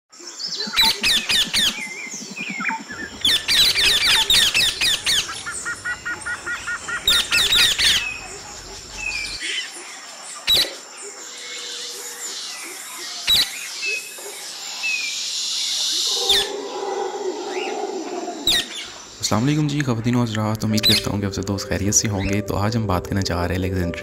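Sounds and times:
parakeets screeching: 3.2 - 9.7, 15.7 - 19.2.

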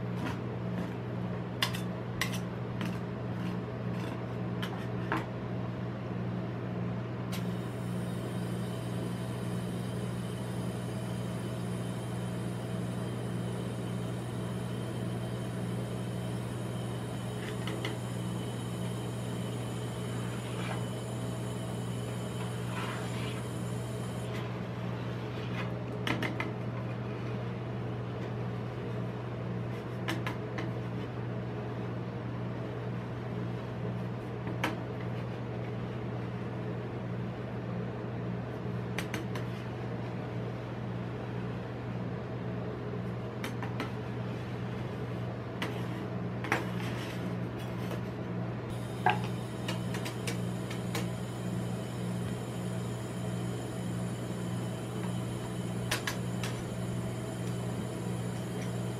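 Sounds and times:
low hum of cold plate machine: 0.0 - 58.9.

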